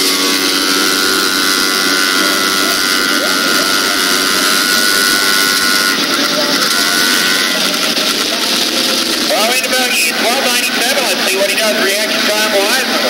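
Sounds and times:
race engine running: 0:00.0 - 0:13.0.

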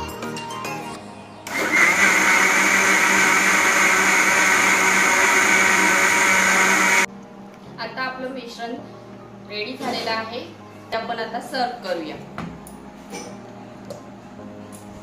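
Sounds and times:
electric mixer grinder blending: 0:01.5 - 0:07.1.

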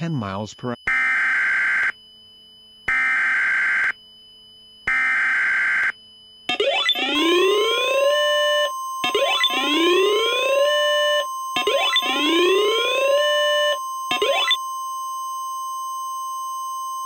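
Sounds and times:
steady alarm tone: 0:00.0 - 0:17.0
rising whooping alarm sweep: 0:04.9 - 0:14.6.

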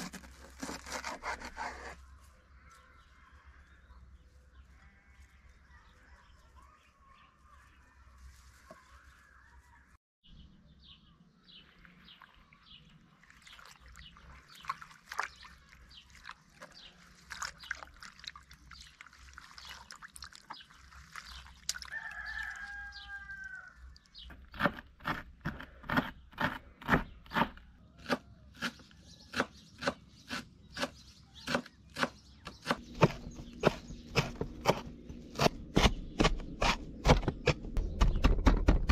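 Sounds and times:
rooster crowing: 0:21.9 - 0:23.9.

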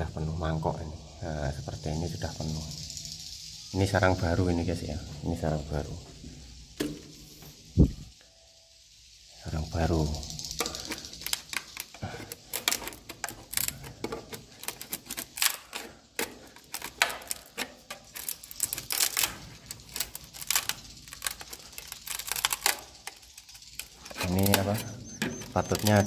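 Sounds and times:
metal scraper scraping wood: 0:10.6 - 0:20.5, 0:23.8 - 0:26.0.

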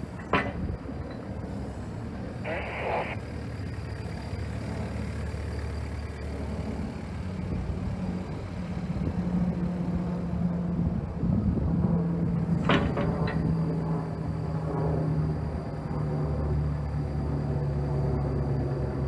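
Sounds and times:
excavator diesel engine running: 0:00.0 - 0:19.0
higher drone: 0:01.0 - 0:12.6.

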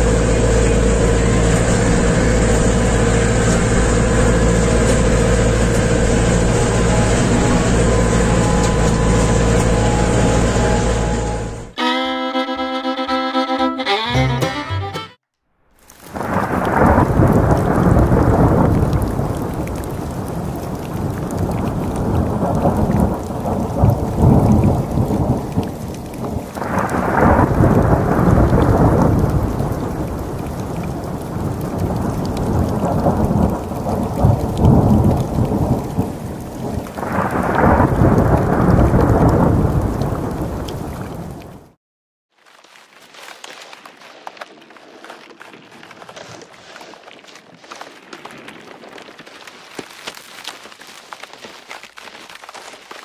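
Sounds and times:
rolling thunder: 0:00.0 - 0:11.8, 0:16.1 - 0:41.8
heavy rain: 0:00.0 - 0:13.4, 0:15.8 - 0:41.8, 0:42.4 - 0:53.0.

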